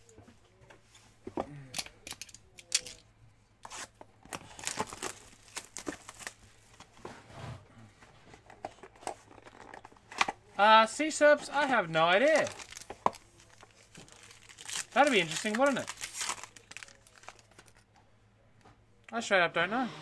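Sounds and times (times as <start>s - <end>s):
plastic wrap tearing and crinkling: 3.7s - 6.5s, 12.0s - 17.8s
cardboard scraping: 6.9s - 8.6s.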